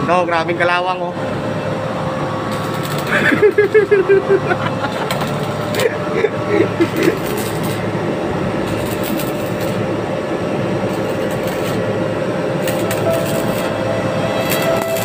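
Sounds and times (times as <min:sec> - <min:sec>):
low machine hum: 0:00.0 - 0:15.0
arc welding crackle: 0:02.5 - 0:04.1, 0:04.7 - 0:10.0, 0:10.6 - 0:15.0.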